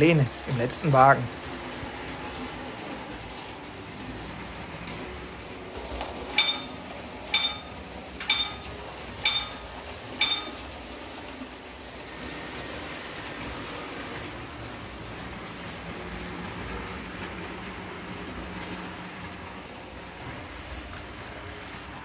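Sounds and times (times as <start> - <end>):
model train running noise: 0.0 - 22.0
bell-like strikes: 6.4 - 10.7.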